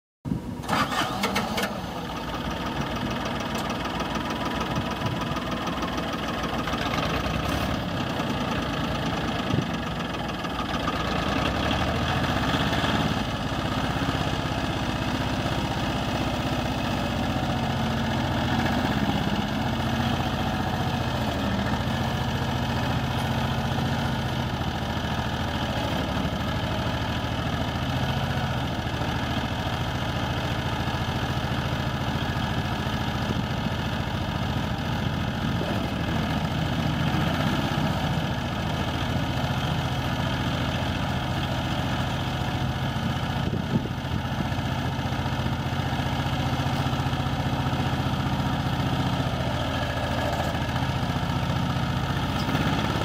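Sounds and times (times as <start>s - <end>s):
diesel tractor engine clattering: 0.6s - 53.0s.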